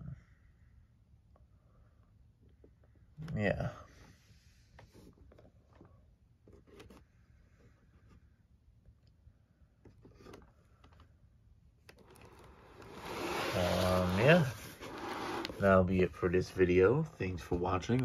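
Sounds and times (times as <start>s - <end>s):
handling noise rubbing and scraping: 12.0s - 16.1s.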